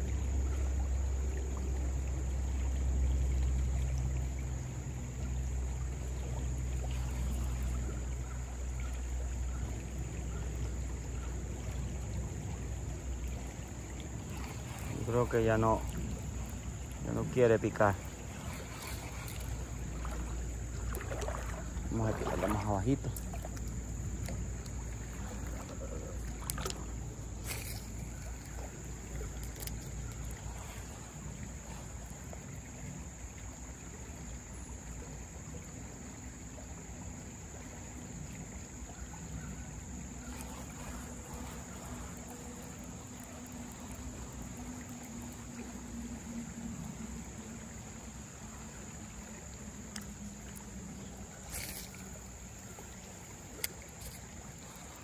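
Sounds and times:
creek water running over gravel: 0:00.0 - 0:55.0
high insect buzz: 0:12.4 - 0:55.0.

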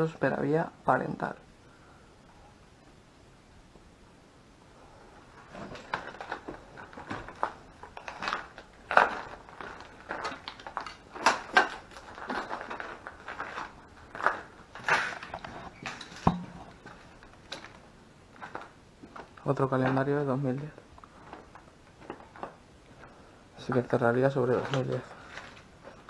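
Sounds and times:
footsteps crunching over rubble: 0:05.4 - 0:26.0.

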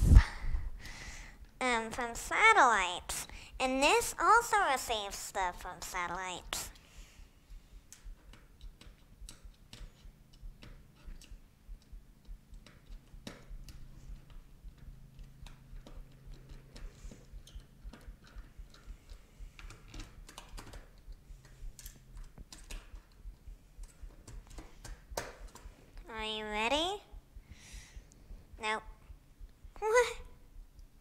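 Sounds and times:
faint low hum: 0:00.0 - 0:31.0
small parts clicking on tabletop: 0:12.5 - 0:23.2.

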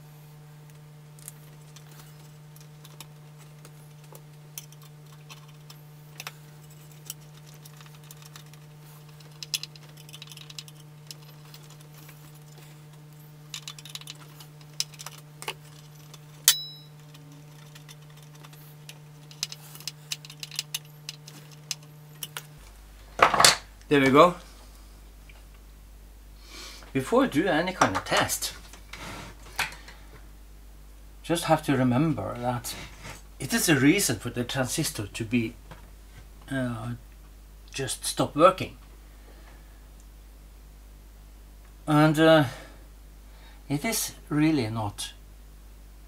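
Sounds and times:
steady low hum: 0:00.0 - 0:46.0
small clicks and metallic rattles: 0:01.2 - 0:22.6.

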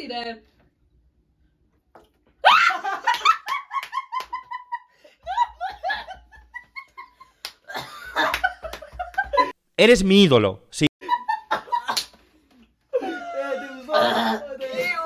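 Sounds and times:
people laughing: 0:02.4 - 0:09.6, 0:11.0 - 0:14.3
hand claps: 0:03.0 - 0:04.5, 0:07.4 - 0:09.6, 0:11.9 - 0:12.2.

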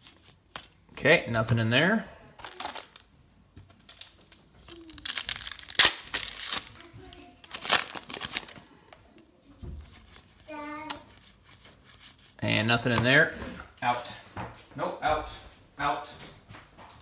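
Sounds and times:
foil wrapper tearing and crinkling: 0:02.4 - 0:03.1, 0:03.7 - 0:08.7.

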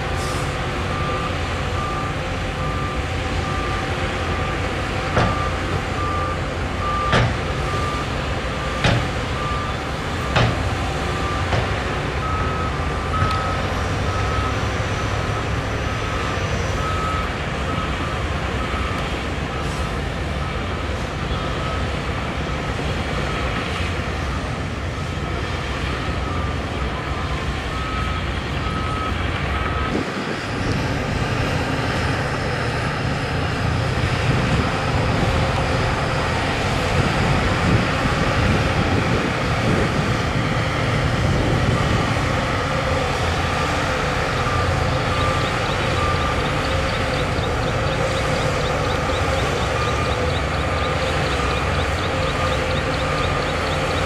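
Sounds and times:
reversing alarm beeps: 0:00.0 - 0:23.6, 0:24.2 - 0:30.2, 0:41.4 - 0:54.0
heavy diesel machinery running: 0:00.0 - 0:54.0.

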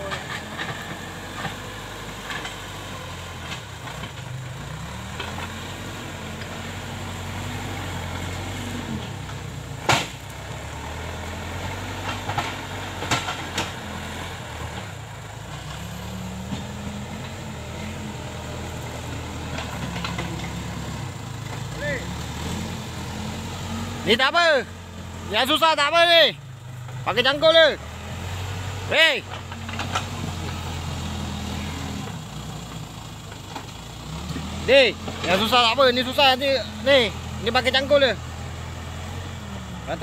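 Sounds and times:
diesel engine under load: 0:00.0 - 0:40.0.

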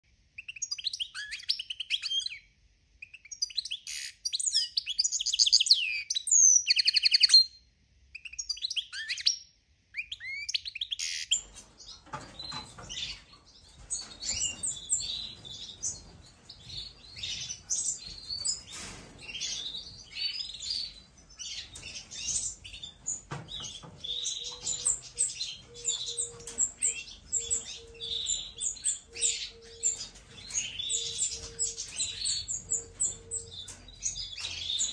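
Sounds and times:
finches chirping and twittering: 0:10.0 - 0:34.9.

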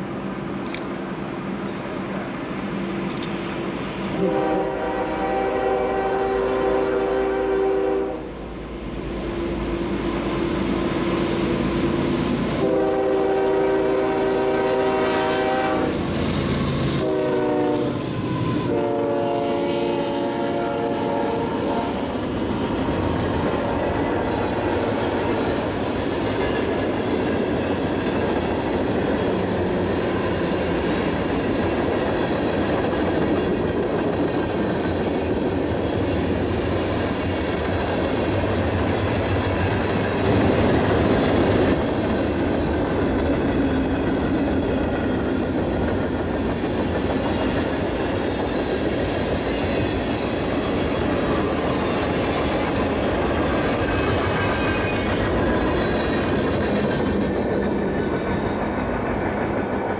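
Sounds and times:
locomotive horn blasts: 0:04.2 - 0:08.5, 0:12.6 - 0:16.0, 0:17.0 - 0:18.0, 0:18.6 - 0:22.0.

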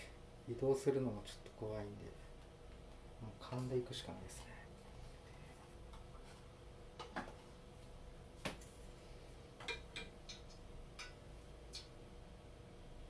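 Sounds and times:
oil heating clicks and ticks: 0:09.6 - 0:12.0.

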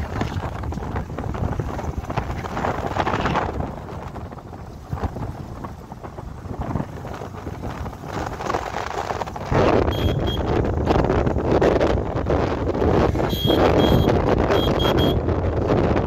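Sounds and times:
motorcycle engine and road noise: 0:00.0 - 0:16.0
wind buffeting microphone: 0:00.0 - 0:16.0
brief high beep: 0:09.9 - 0:10.5, 0:13.3 - 0:15.2.

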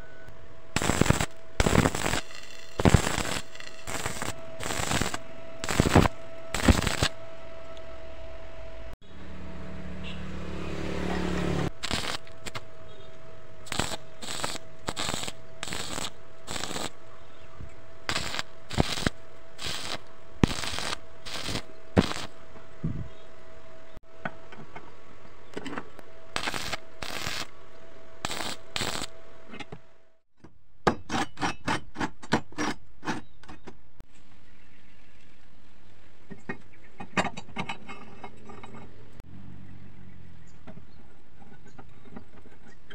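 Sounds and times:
welding arc crackling: 0:00.8 - 0:07.2, 0:11.7 - 0:12.7, 0:13.6 - 0:17.0, 0:18.1 - 0:22.4, 0:26.3 - 0:27.6, 0:28.2 - 0:29.1.

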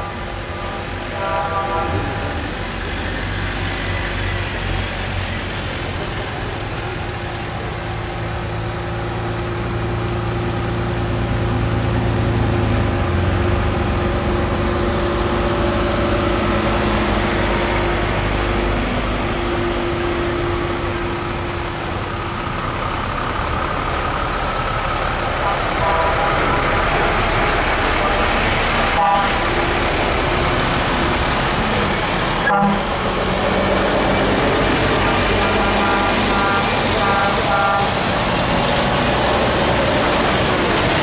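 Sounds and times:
truck diesel engines: 0:00.0 - 0:41.0
vehicle horn: 0:00.6 - 0:02.4, 0:25.4 - 0:26.5, 0:29.0 - 0:29.4, 0:32.4 - 0:32.9, 0:35.4 - 0:38.0.

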